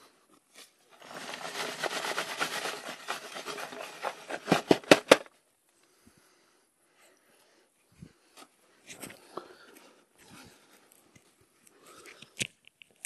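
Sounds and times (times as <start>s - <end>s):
scraping in dry dirt: 0.9s - 4.7s.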